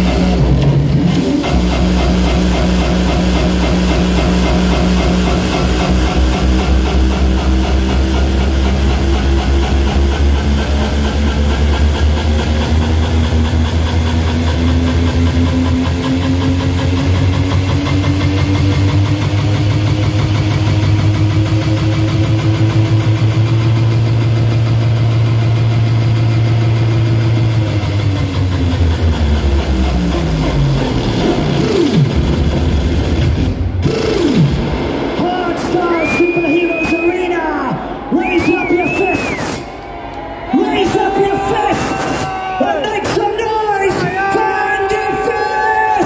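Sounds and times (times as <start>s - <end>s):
droning bass sweeping in pitch: 0.0s - 36.4s
hardstyle music: 0.0s - 46.0s.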